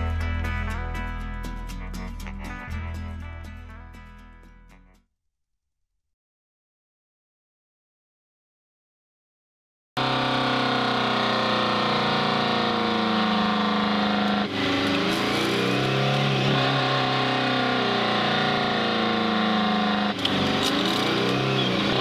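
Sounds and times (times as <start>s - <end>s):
truck diesel engine running hard: 10.0s - 22.0s.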